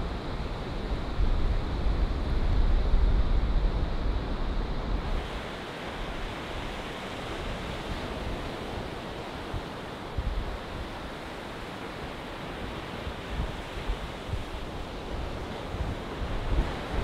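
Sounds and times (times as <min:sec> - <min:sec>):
surf washing up a beach: 0:00.0 - 0:17.0
wind rumbling on microphone: 0:00.0 - 0:17.0.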